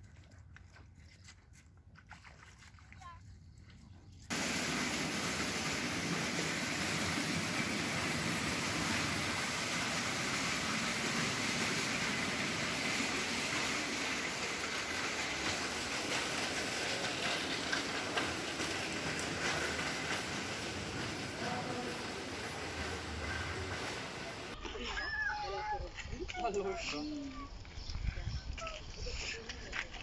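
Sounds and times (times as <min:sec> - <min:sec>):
shopping carts rattling: 0:04.3 - 0:24.6.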